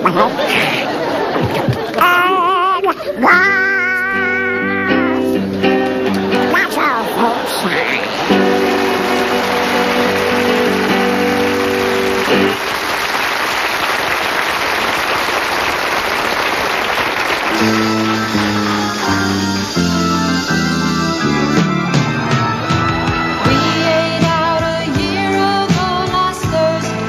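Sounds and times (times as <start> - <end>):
audience applauding: 0.0 - 5.0, 6.0 - 20.3, 21.5 - 23.8
music with stepping low melody: 17.6 - 27.0.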